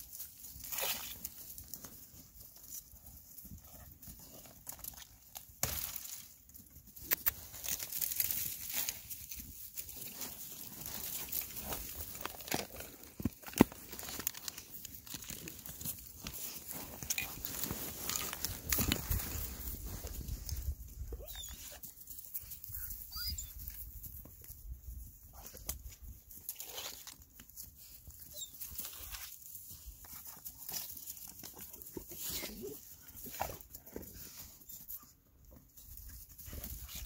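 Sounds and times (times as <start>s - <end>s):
footsteps on frosty grass: 7.4s - 12.4s, 15.4s - 21.1s.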